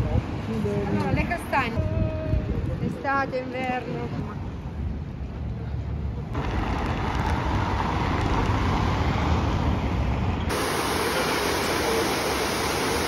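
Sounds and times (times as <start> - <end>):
city traffic hum: 0.0 - 13.0
fountain water falling: 10.5 - 13.0.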